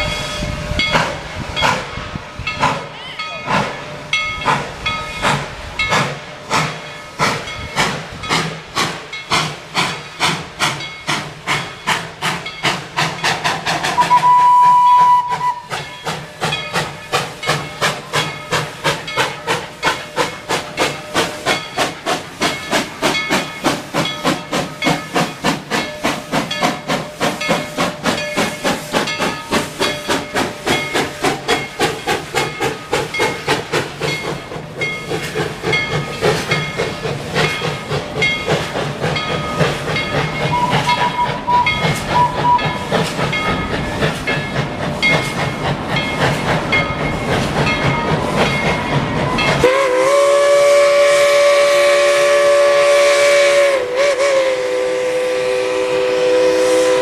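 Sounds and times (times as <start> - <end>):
steam hiss: 0.0 - 57.0
steam locomotive chuffing: 0.0 - 57.0
train whistle blast: 13.9 - 15.8, 40.5 - 42.8, 49.6 - 57.0.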